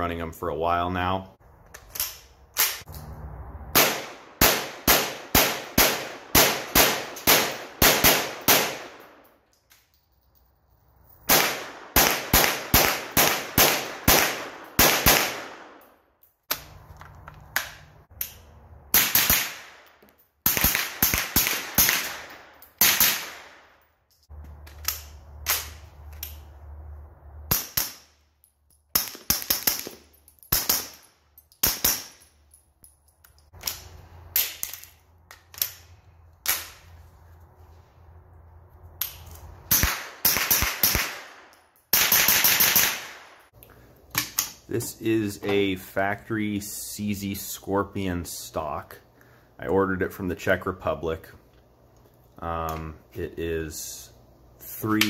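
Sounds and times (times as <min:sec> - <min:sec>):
gunshots with echoing tail: 0:03.7 - 0:09.2, 0:11.3 - 0:15.8.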